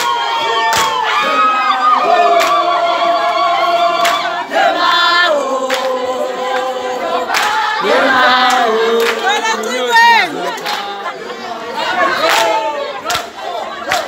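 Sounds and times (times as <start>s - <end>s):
crowd singing in chorus: 0.0s - 14.0s
sharp clap or stamp beat: 0.7s - 1.0s.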